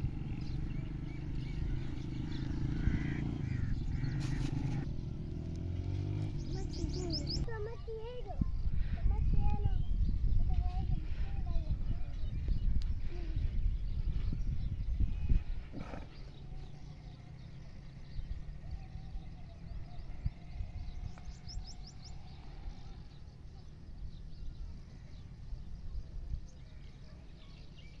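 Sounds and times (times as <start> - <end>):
high bird chirps: 6.0 - 7.7.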